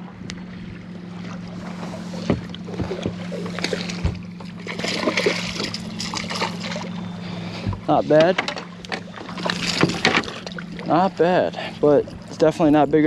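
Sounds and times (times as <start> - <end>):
water splashing: 0.0 - 12.8
steady low hum: 0.0 - 13.0
knocks on boat hull: 2.2 - 3.2.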